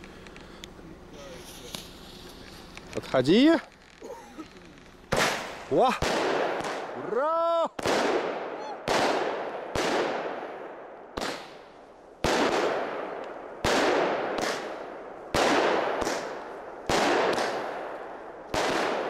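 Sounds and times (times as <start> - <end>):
firework shells bursting: 1.4 - 7.0, 11.1 - 19.0.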